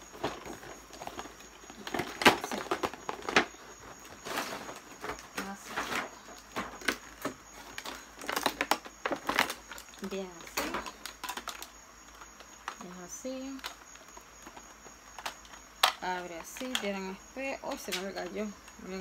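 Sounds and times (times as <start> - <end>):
packaging rustling: 0.0 - 12.8.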